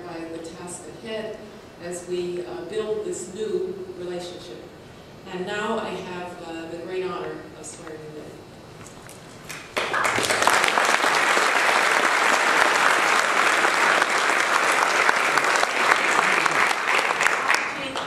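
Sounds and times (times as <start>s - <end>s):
audience applauding: 9.5s - 18.0s.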